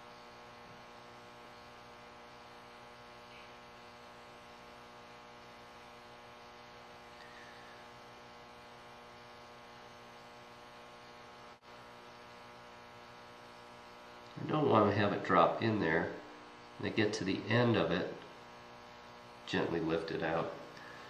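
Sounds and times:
electrical mains hum: 0.0s - 21.0s.

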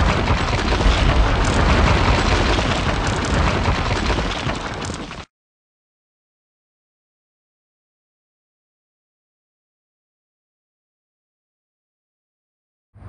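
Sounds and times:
heavy low rumble: 0.0s - 5.0s
wall exploding and crumbling: 0.0s - 5.3s.

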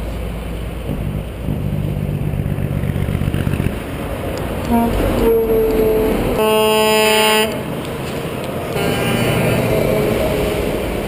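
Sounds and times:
passing trucks engine and tyres: 0.0s - 11.0s
truck air horn blast: 4.7s - 7.7s, 8.7s - 10.8s.

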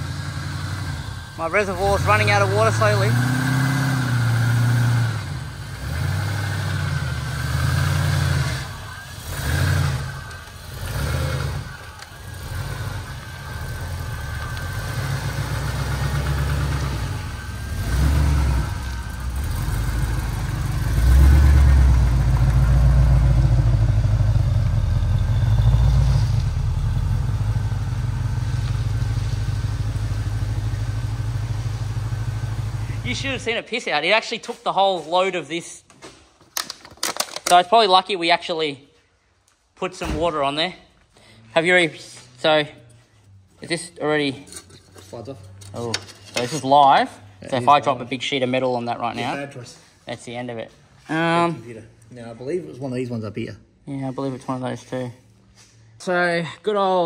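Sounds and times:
engine rumbling: 0.0s - 33.7s.

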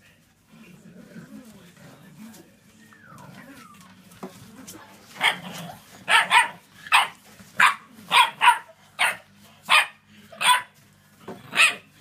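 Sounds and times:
puppy barking: 5.2s - 10.8s, 11.5s - 11.9s.

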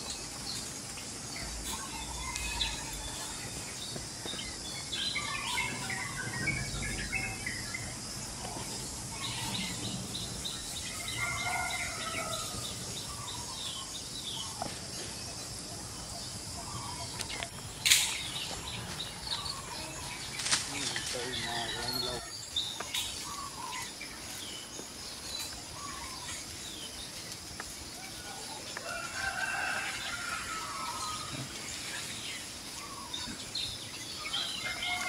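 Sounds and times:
high insect hiss: 0.0s - 35.0s
bird chirps: 1.4s - 27.2s
loud rustle: 20.2s - 21.2s.

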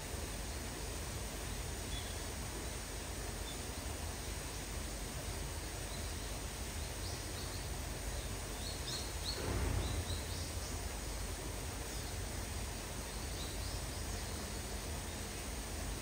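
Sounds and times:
low rush: 9.3s - 12.7s.

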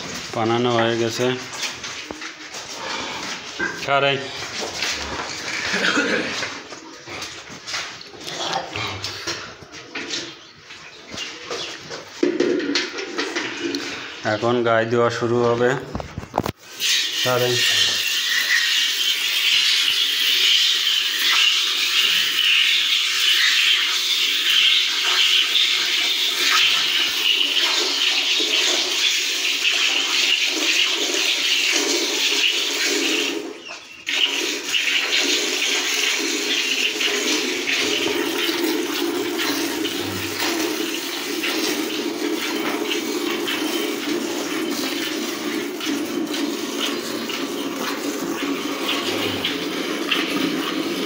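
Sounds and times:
milk squirting into steel bucket: 12.0s - 14.4s, 16.2s - 51.0s.

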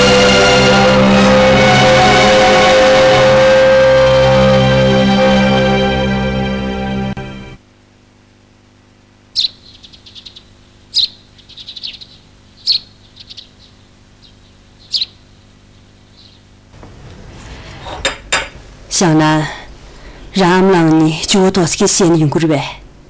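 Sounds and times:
small birds chirping: 9.3s - 16.6s.

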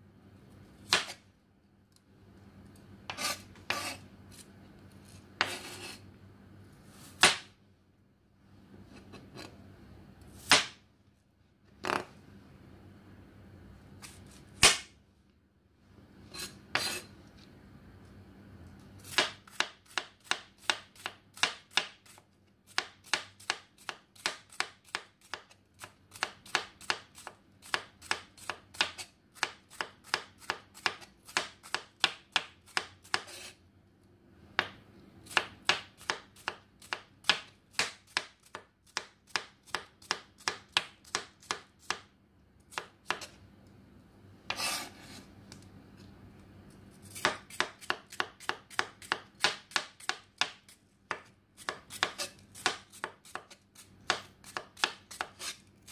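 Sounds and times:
knife chopping on cutting board: 0.8s - 1.2s, 3.1s - 4.0s, 5.4s - 6.0s, 7.1s - 7.6s, 10.4s - 10.8s, 16.4s - 17.1s, 19.0s - 33.6s, 34.6s - 42.1s, 42.7s - 43.4s, 44.5s - 45.2s, 47.1s - 55.9s.

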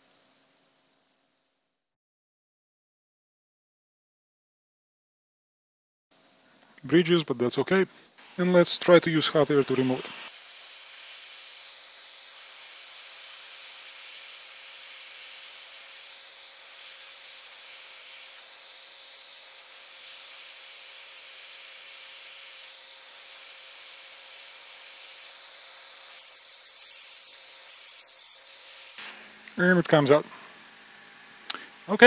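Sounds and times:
hot air gun hissing: 10.2s - 29.1s.

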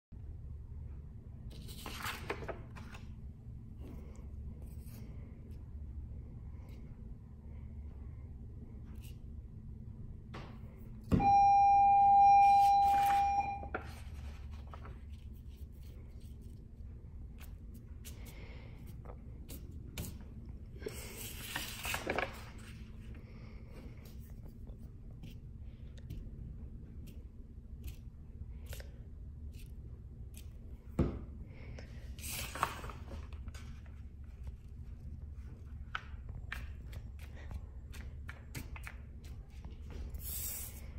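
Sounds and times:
low room hum: 0.1s - 40.9s
paper rustling: 1.5s - 3.1s, 12.8s - 16.6s, 20.9s - 23.1s, 32.2s - 40.6s
long electronic beep: 11.2s - 13.7s.

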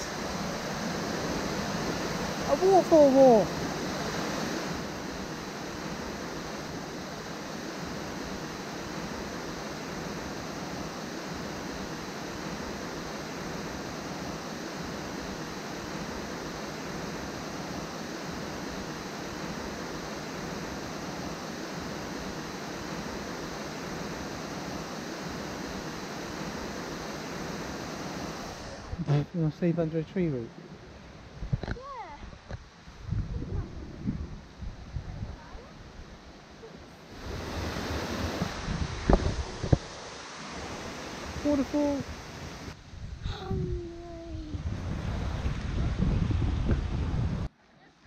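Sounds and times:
waterfall rushing: 0.0s - 29.0s, 36.9s - 42.8s.

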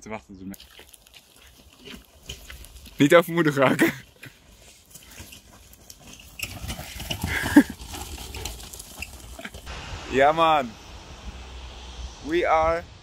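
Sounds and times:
wheelchair wheels crunching gravel: 0.6s - 9.7s.

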